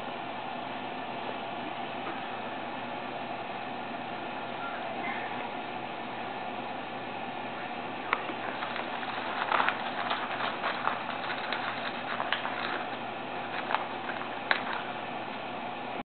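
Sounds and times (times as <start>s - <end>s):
paper and cardboard rustling: 8.1s - 15.0s.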